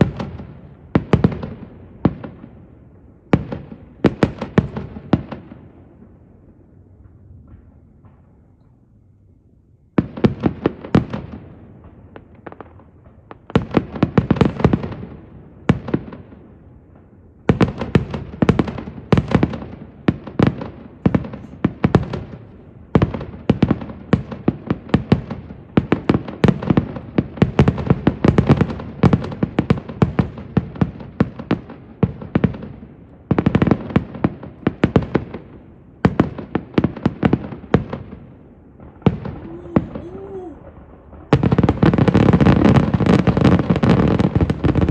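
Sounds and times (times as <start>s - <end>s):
fireworks bangs and crackling: 0.0s - 8.9s, 9.9s - 44.9s.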